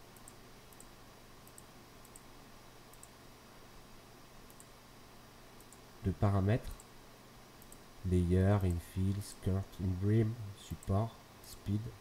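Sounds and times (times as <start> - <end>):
low steady hum: 0.0 - 12.0
computer mouse clicks: 0.1 - 2.3, 2.9 - 3.2, 4.5 - 4.7, 5.6 - 5.8, 7.6 - 7.8.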